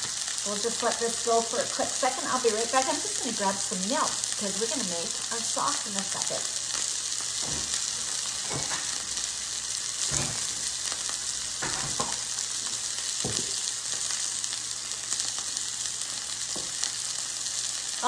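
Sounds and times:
chicken sizzling in oil: 0:00.0 - 0:18.0.

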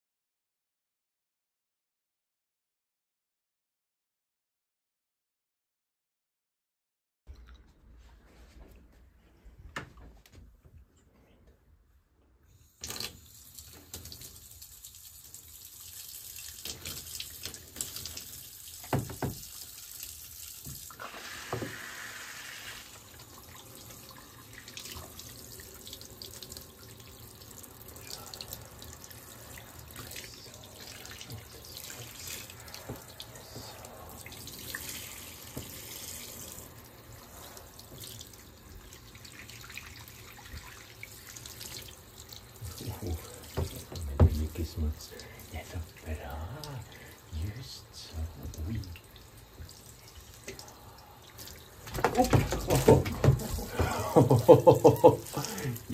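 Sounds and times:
shower water spraying: 0:12.8 - 0:55.9.

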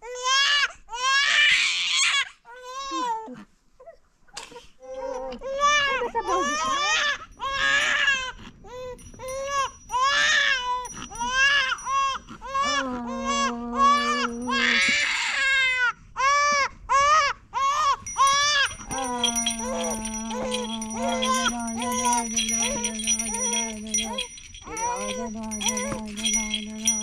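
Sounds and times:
infant crying: 0:04.9 - 0:27.0
woman singing long low notes: 0:12.6 - 0:14.7, 0:18.8 - 0:27.0.

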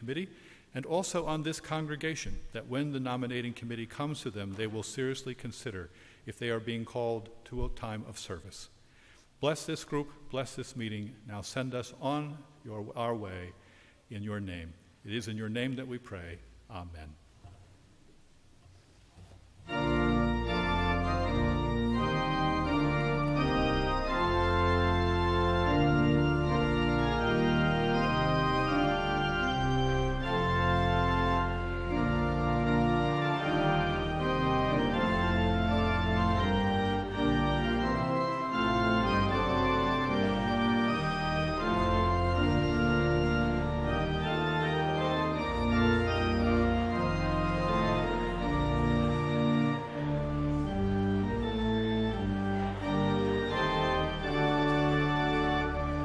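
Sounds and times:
pipe organ chords: 0:00.0 - 0:17.1, 0:19.6 - 0:56.0
deep organ pedal bass: 0:19.7 - 0:56.0.

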